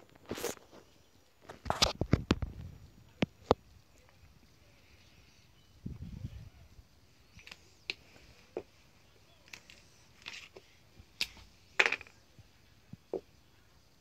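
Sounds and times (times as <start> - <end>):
plastic markers clicking and knocking: 7.4 - 8.0, 9.4 - 12.2.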